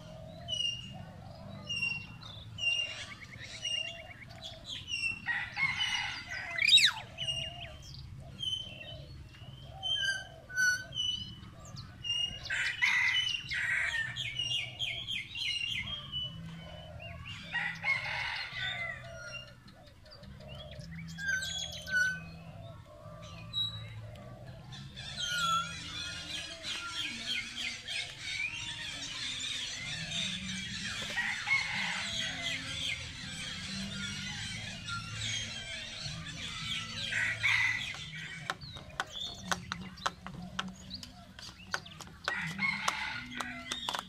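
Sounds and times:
lower bird calls pulsing: 0:06.4 - 0:12.4
high bird chirp: 0:06.5 - 0:12.4.

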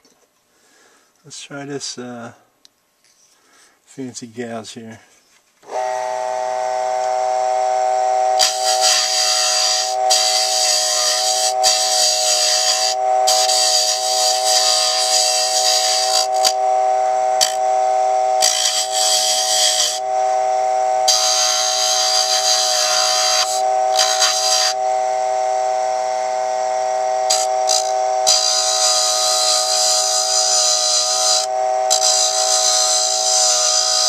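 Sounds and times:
small electric motor whining: 0:05.6 - 0:34.0
gouge scraping spinning wood: 0:08.4 - 0:16.8, 0:17.4 - 0:17.7, 0:18.3 - 0:20.2, 0:21.0 - 0:24.8, 0:27.2 - 0:34.0.

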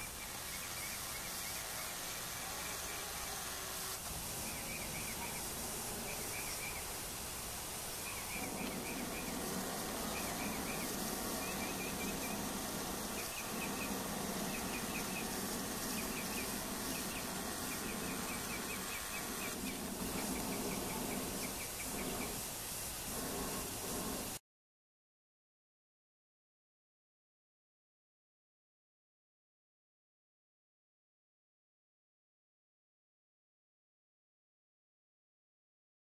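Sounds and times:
small birds chirping: 0:00.0 - 0:03.6, 0:04.2 - 0:22.5
steady outdoor hiss: 0:00.0 - 0:24.4
low drone: 0:02.4 - 0:22.4.

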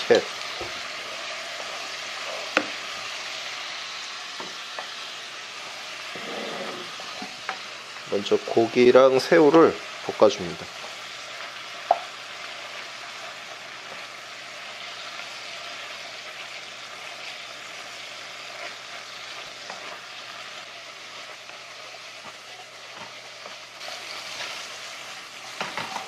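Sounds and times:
food sizzling in oil: 0:00.0 - 0:26.0
wooden spatula stirring in pan: 0:10.6 - 0:26.0.

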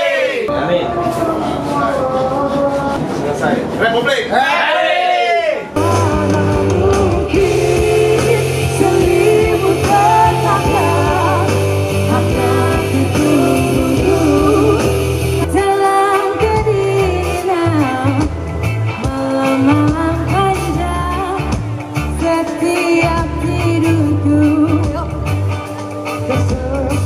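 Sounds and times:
person singing: 0:00.5 - 0:03.2, 0:05.8 - 0:18.4, 0:22.2 - 0:27.0
pop band playing live: 0:05.8 - 0:27.0.

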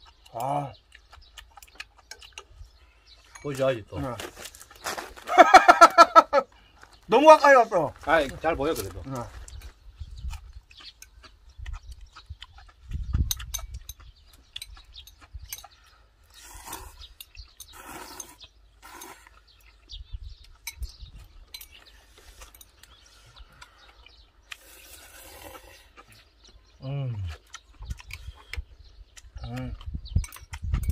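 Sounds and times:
chewing clicks: 0:00.0 - 0:03.7, 0:09.4 - 0:30.9
person slurping noodles: 0:16.3 - 0:17.1, 0:17.7 - 0:19.4, 0:24.6 - 0:26.0.

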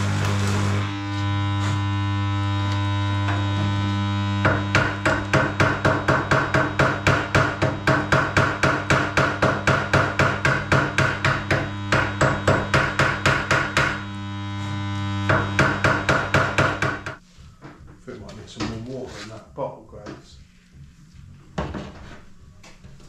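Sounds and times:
electrical hum: 0:00.0 - 0:23.0.

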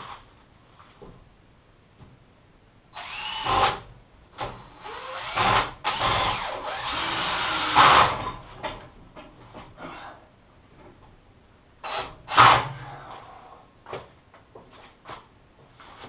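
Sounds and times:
drill driving screws into wood: 0:03.0 - 0:08.4, 0:11.8 - 0:12.8.

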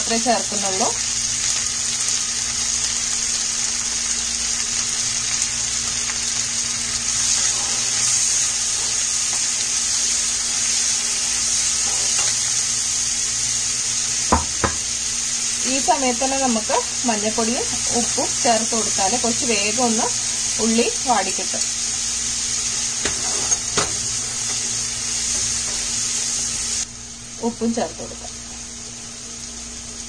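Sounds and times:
onions sizzling in a pan: 0:00.0 - 0:30.0
spatula knocking against pan: 0:14.3 - 0:14.8.

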